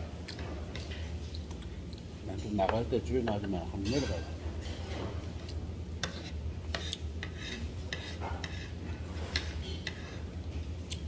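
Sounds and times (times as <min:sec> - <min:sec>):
cutlery clinking on ceramic plate: 0:03.4 - 0:05.1.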